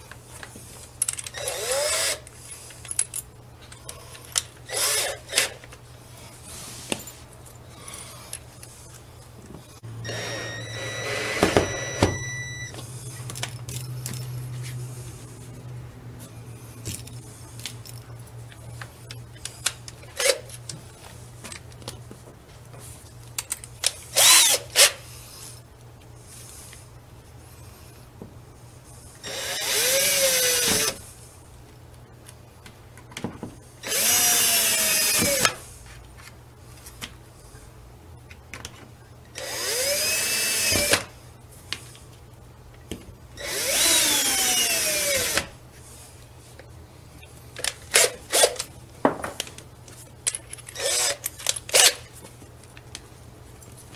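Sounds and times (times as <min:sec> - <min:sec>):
cordless drill driving screws: 0:01.3 - 0:02.2, 0:04.7 - 0:05.6, 0:10.0 - 0:12.6, 0:24.2 - 0:24.9, 0:29.2 - 0:31.0, 0:33.8 - 0:35.6, 0:39.4 - 0:41.1, 0:43.4 - 0:45.5, 0:50.8 - 0:51.2.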